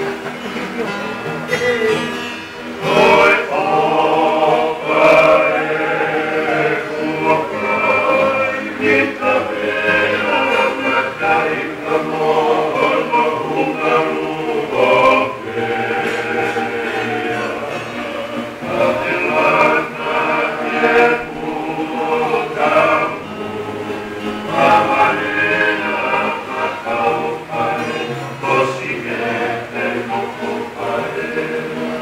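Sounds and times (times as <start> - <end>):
acoustic guitar: 0.0 - 32.0
men singing in harmony: 2.6 - 32.0.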